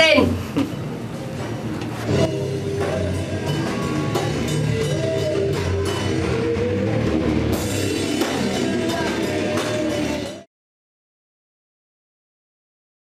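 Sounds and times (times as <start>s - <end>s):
drum kit beat: 2.0s - 10.5s
rock guitar: 2.1s - 10.5s.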